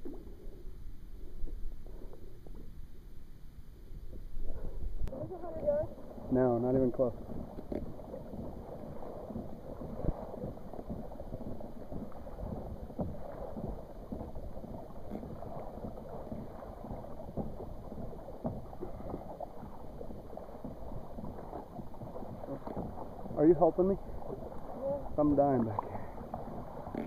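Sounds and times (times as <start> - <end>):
water lapping against kayak hull: 0.0 - 27.0.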